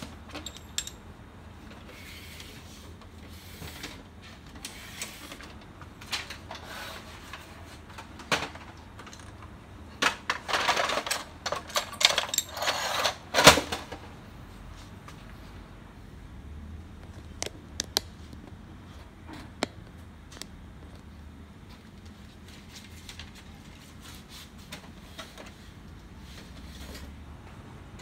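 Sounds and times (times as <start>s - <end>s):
printer mechanism clattering and clicking: 7.3s - 14.0s.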